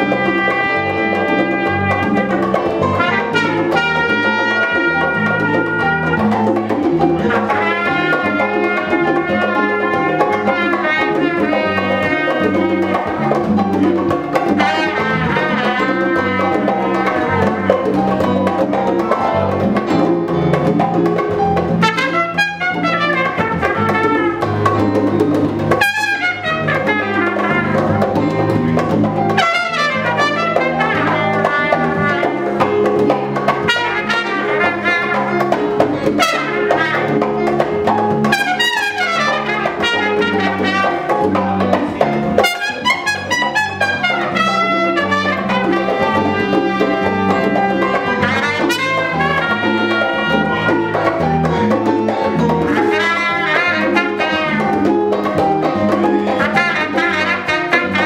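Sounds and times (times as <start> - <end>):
trumpet quick runs: 0.0 - 13.5, 14.4 - 18.0, 21.8 - 24.7, 25.7 - 28.2, 29.4 - 32.4, 33.6 - 37.3, 38.2 - 41.4, 42.4 - 51.4, 52.7 - 55.0, 56.4 - 58.0
salsa band playing: 0.0 - 58.0.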